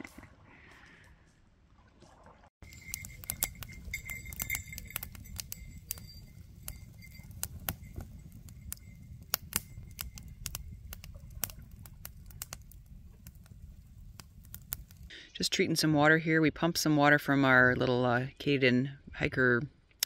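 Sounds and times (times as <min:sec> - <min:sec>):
small hard objects clicking: 0:02.6 - 0:15.1.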